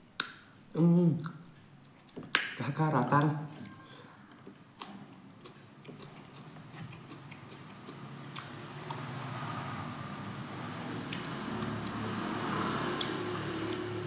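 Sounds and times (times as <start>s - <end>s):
man chewing food: 4.6s - 9.3s, 12.8s - 14.0s.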